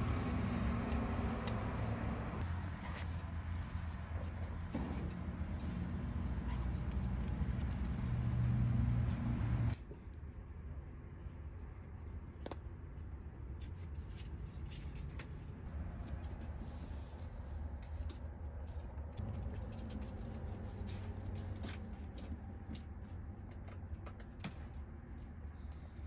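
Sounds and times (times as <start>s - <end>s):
claws scrabbling and scratching: 2.4s - 9.8s, 13.5s - 26.0s.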